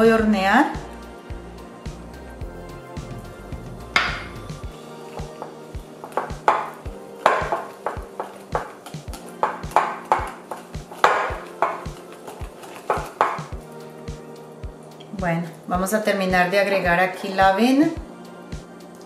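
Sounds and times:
background music with ringing notes: 0.0 - 19.0
whisk knocking against glass bowl: 5.2 - 13.6.

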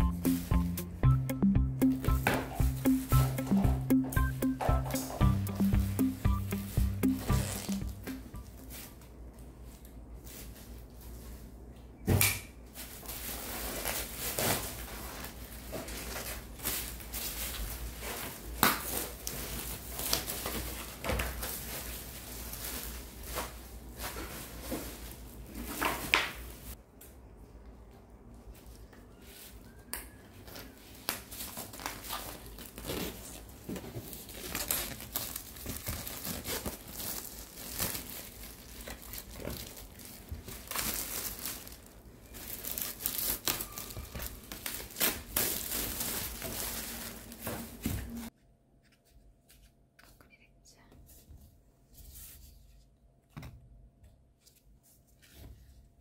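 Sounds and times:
plastic wrap crinkling and tearing: 12.7 - 26.7, 30.4 - 47.9.

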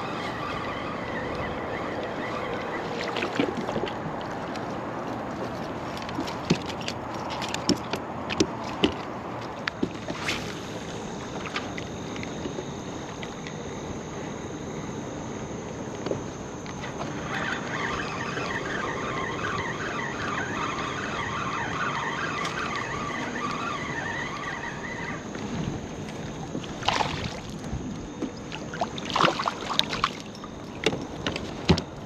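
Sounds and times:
high wavering warble: 0.0 - 3.8, 10.1 - 30.7
rushing water and wind: 0.0 - 32.0
water washing against kayak hull: 21.3 - 32.0.

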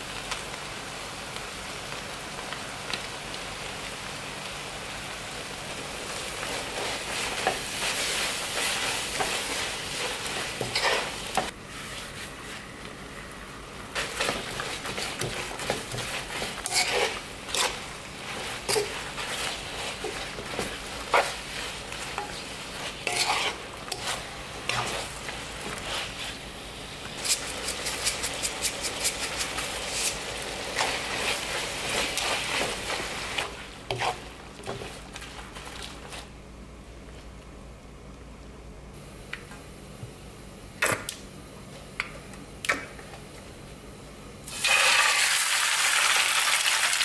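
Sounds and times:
food sizzling in a wok: 0.0 - 36.2, 44.5 - 47.0
spatula scraping and knocking pan: 6.7 - 11.5, 14.0 - 26.3, 30.8 - 35.3.

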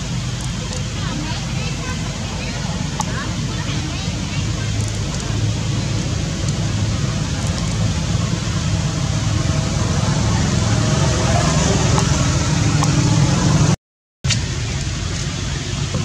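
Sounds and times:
low rumble: 15.6 - 16.0.

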